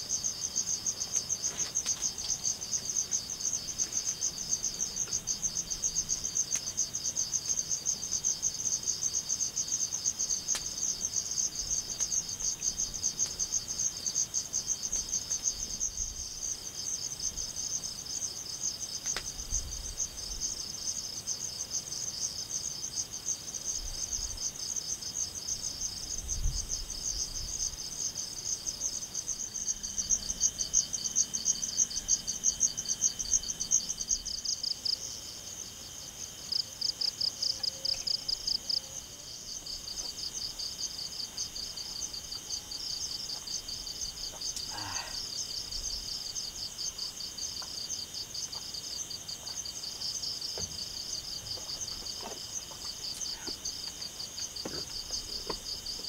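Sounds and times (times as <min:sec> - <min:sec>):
crickets trilling: 0:00.0 - 0:56.0.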